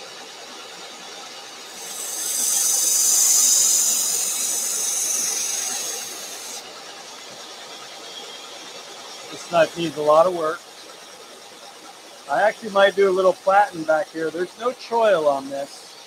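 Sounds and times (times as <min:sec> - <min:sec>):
belt grinder running: 0:01.6 - 0:06.7
knife blade grinding hiss: 0:01.7 - 0:06.7.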